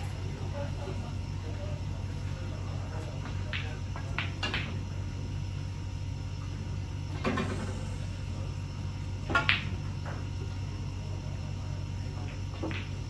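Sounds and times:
steady low hum: 0.0s - 13.0s
snooker balls clicking: 3.3s - 4.8s, 12.2s - 13.0s.

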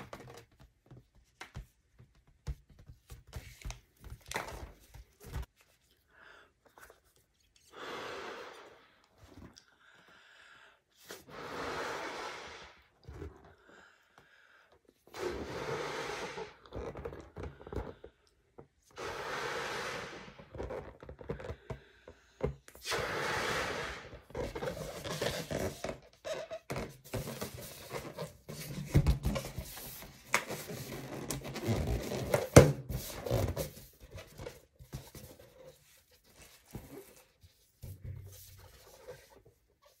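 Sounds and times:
person blowing up balloon: 11.1s - 13.4s, 15.1s - 17.6s, 18.9s - 21.0s, 22.7s - 26.8s
rubbing balloon: 15.1s - 17.6s, 19.0s - 21.4s, 22.8s - 33.9s.

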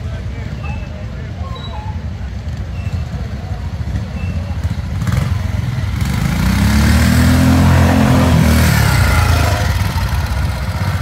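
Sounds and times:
motorcycle engine passing: 3.0s - 11.0s.

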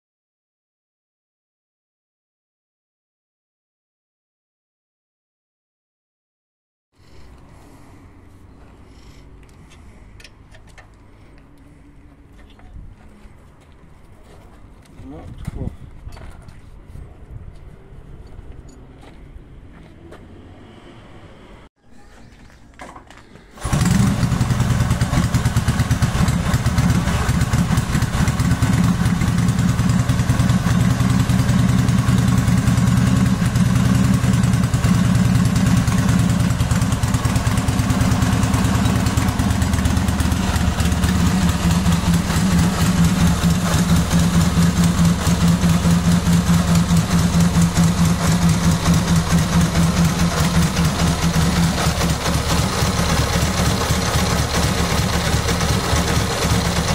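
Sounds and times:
motorcycle engine starting and idling: 22.8s - 56.9s.

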